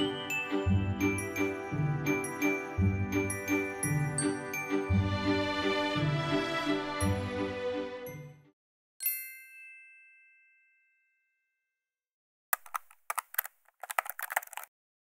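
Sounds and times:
background music: 0.0s - 8.5s
sharp clicks: 12.6s - 14.7s.

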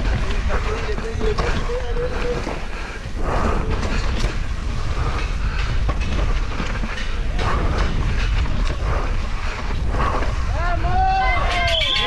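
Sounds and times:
mountain bike rumbling downhill: 0.0s - 11.8s
bike rattling over bumps: 0.0s - 12.0s.

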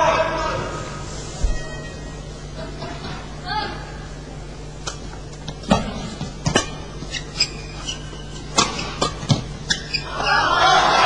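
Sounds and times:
court shoes squeaking: 4.6s - 10.4s
racket striking shuttlecock: 5.7s - 10.0s.

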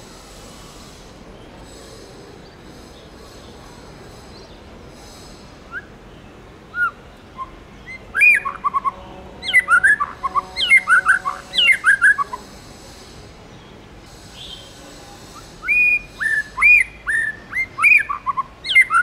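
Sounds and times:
bird whistling and chirping: 6.7s - 12.4s, 15.6s - 19.0s.

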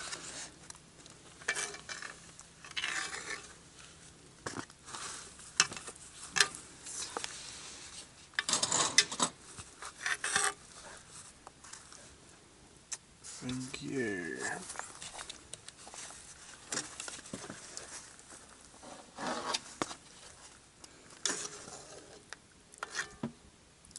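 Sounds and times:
metal spoon scraping a pot: 1.5s - 3.6s, 22.8s - 23.2s.

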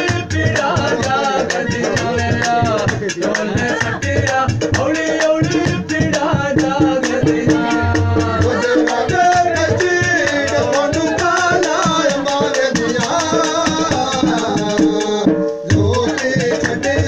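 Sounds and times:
fast percussion beat with rattling: 0.0s - 17.0s
person singing folk song: 0.0s - 17.0s.

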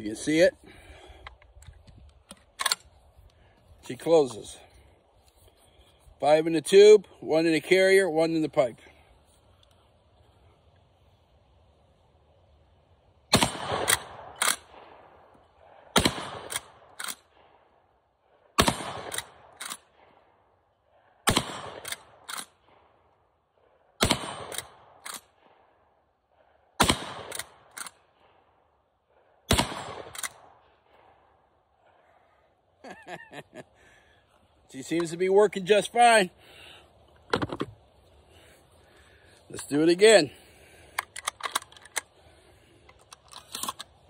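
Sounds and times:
shotgun shots: 13.3s - 15.2s, 15.9s - 17.4s, 18.6s - 20.0s, 21.2s - 22.6s, 24.0s - 25.4s, 26.8s - 27.8s, 29.5s - 30.6s.

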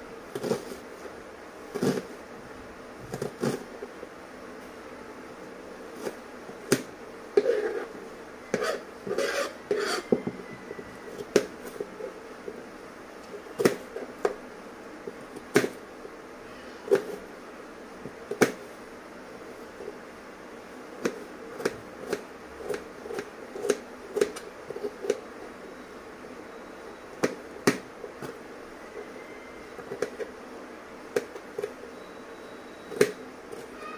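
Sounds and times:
knife chopping on plastic board: 6.0s - 7.6s, 13.6s - 14.4s, 15.1s - 15.8s, 18.3s - 18.6s, 21.0s - 25.2s, 27.2s - 28.4s, 31.1s - 31.7s, 32.9s - 33.2s.

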